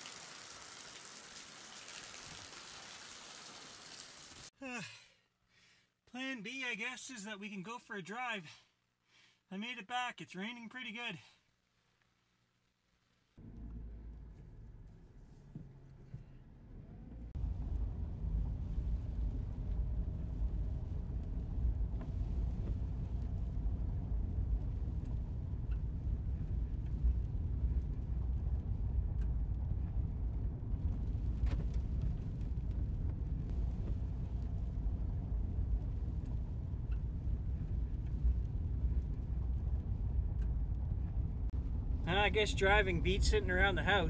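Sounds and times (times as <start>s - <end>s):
car engine and road rumble: 13.4s - 44.0s.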